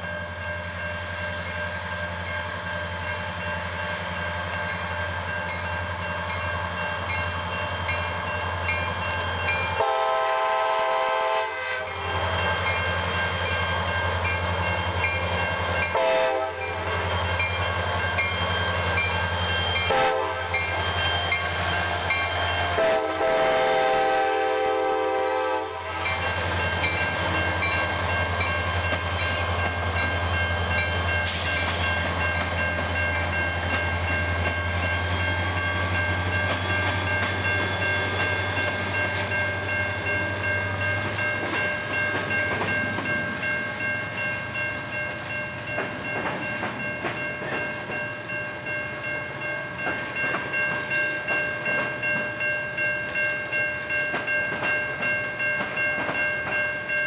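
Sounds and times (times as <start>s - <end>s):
high-pitched steel squeal: 16.7s - 22.9s
wheels clacking over rail joints: 25.9s - 43.9s, 45.2s - 48.0s.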